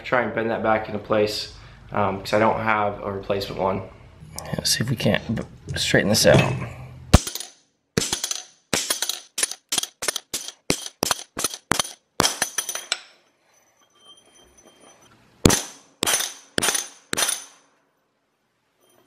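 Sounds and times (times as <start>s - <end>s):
hammer striking steel axle: 7.1s - 13.1s, 15.5s - 17.6s.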